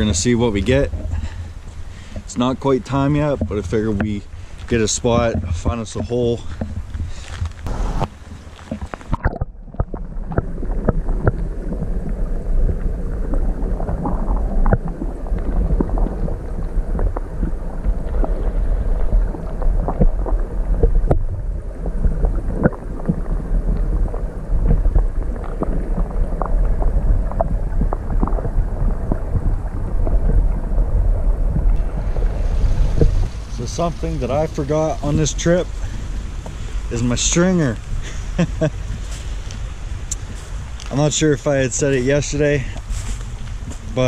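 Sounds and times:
muffled underwater stream rush: 0.0 - 44.0
small underwater clicks: 3.3 - 33.3.

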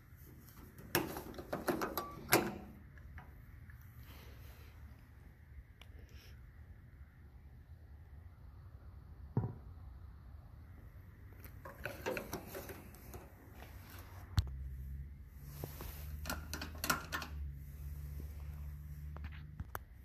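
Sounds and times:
low steady hum: 0.0 - 20.0
metal clicks and knocks: 0.7 - 3.4, 11.5 - 13.4, 16.2 - 17.4.

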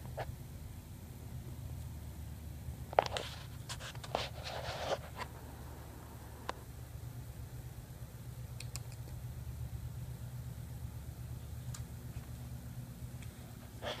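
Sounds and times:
steady low hum: 0.0 - 14.0
kitten scratching on fabric: 3.0 - 5.5
sharp tick: 8.6 - 9.2.

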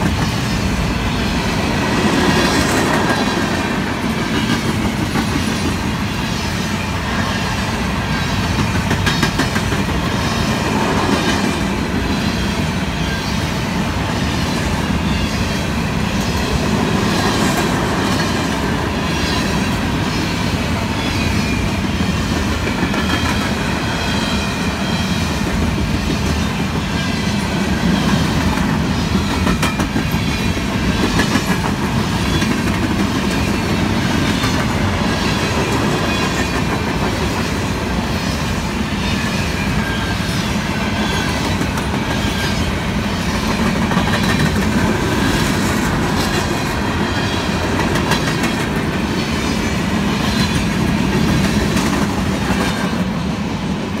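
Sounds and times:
clickety-clack over rail joints: 0.0 - 53.4
freight train wheels rumbling: 0.0 - 54.0.

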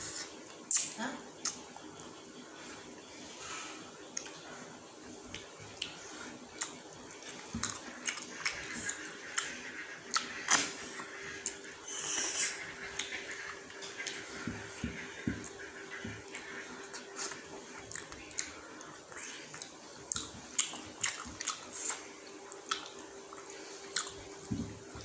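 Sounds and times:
wet chewing and smacking: 5.2 - 25.0
hissing suck on a bone: 11.9 - 12.7.

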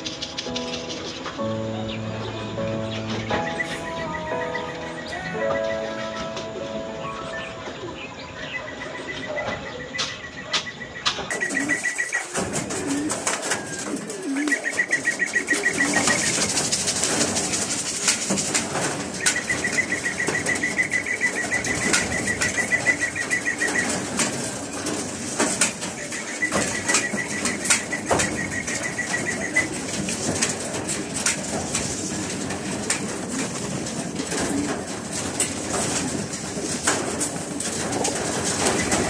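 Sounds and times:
pigeons flapping wings: 0.0 - 1.5, 10.0 - 39.0.

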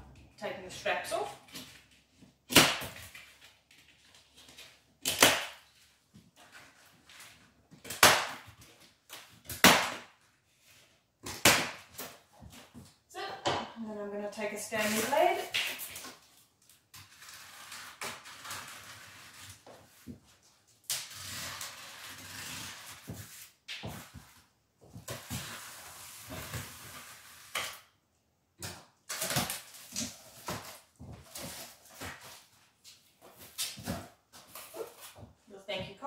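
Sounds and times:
knife slitting packing tape: 14.8 - 19.7, 20.8 - 23.6.

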